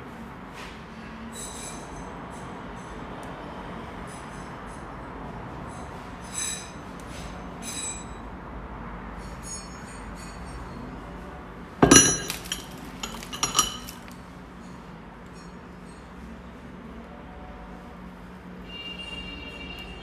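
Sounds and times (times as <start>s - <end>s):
metal wrenches clinking: 11.8s - 14.1s
metal clatter: 11.8s - 14.2s.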